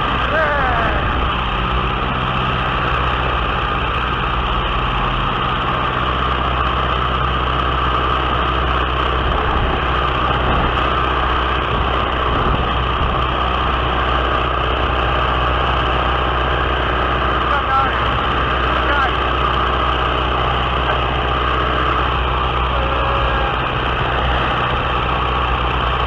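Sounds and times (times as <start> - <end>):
aircraft engine drone: 0.0 - 26.0
wind rush over microphone: 9.2 - 11.0, 11.6 - 13.3.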